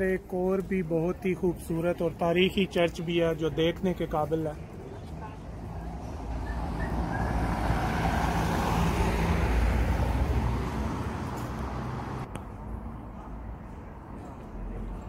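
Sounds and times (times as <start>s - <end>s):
vehicle passing by: 5.6s - 12.3s.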